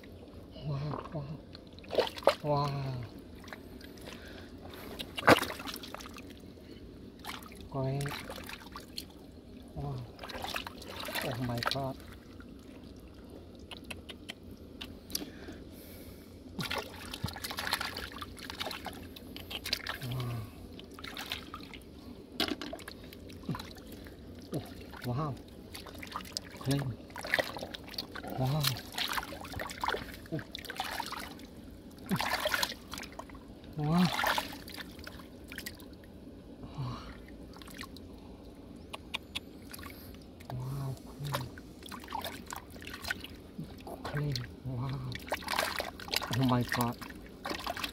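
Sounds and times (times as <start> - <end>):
water trickling and splashing: 0.0 - 15.5, 16.5 - 38.2, 38.9 - 47.9
hands squelching wet mud: 0.8 - 6.3, 9.8 - 12.2, 16.6 - 21.8, 22.4 - 31.4, 32.0 - 35.8, 38.9 - 47.9.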